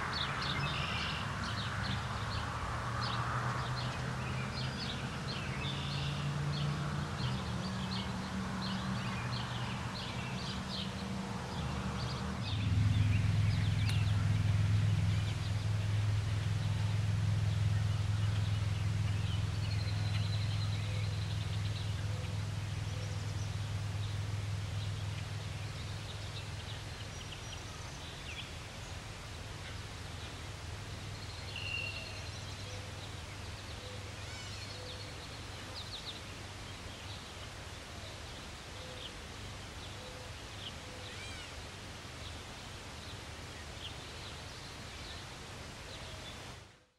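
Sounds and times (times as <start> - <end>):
steady low rumble: 10.9 - 31.3.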